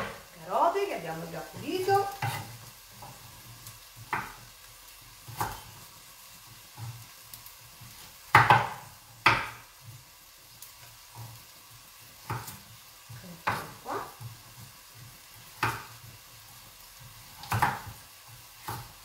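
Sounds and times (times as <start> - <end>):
knife cutting carrots on wooden board: 17.3 - 18.9.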